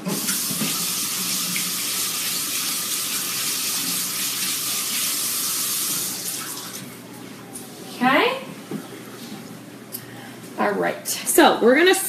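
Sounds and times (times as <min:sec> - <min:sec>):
faucet running into sink: 0:00.0 - 0:06.8.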